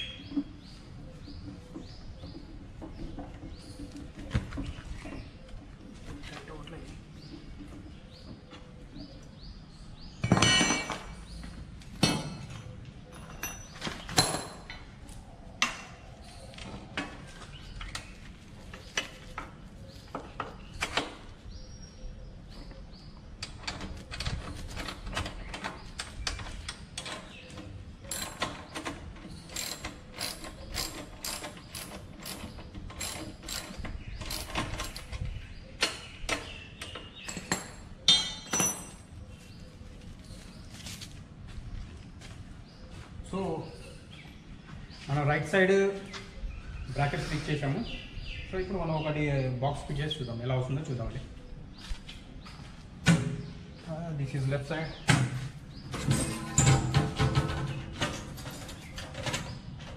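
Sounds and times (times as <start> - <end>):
metal clanking on metal: 10.2 - 11.2, 37.2 - 39.1, 55.2 - 59.9.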